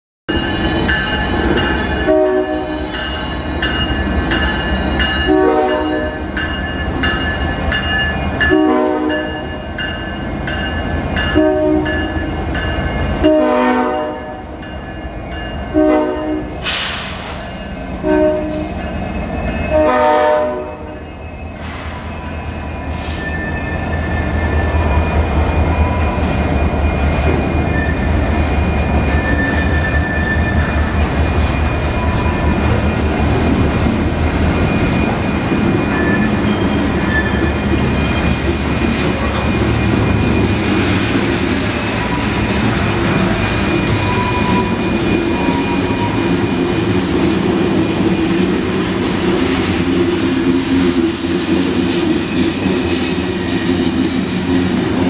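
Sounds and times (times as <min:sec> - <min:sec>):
locomotive air horn blasts: 0:02.1 - 0:02.9, 0:05.3 - 0:06.2, 0:08.5 - 0:09.2, 0:11.4 - 0:11.9, 0:13.2 - 0:14.4, 0:15.7 - 0:17.2, 0:18.0 - 0:18.7, 0:19.7 - 0:21.0.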